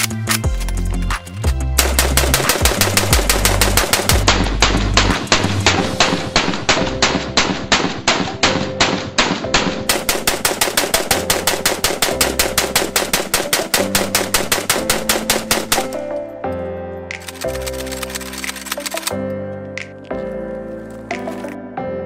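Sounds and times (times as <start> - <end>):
background music: 0.0 - 22.0
rifle firing rapidly: 1.8 - 16.0.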